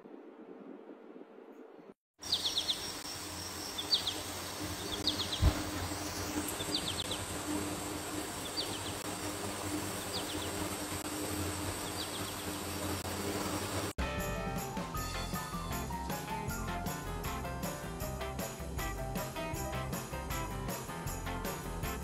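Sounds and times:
high bird chirp: 2.2 - 7.3, 8.3 - 9.0, 9.9 - 10.6
low thump: 5.4 - 5.8.

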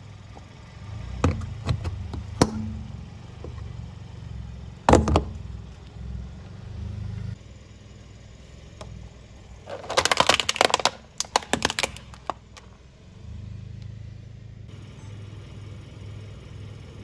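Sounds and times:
tyre crushing cups: 9.6 - 12.7
plastic toy cracking and snapping: 9.7 - 12.7.

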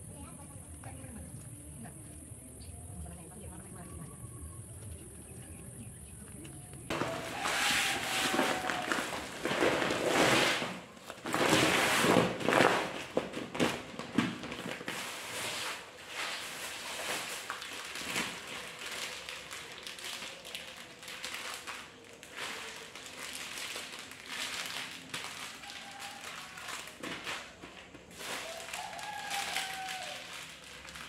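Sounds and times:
plastic packaging rustling: 6.9 - 31.0
plastic sack shuffling on floor: 6.9 - 31.0.

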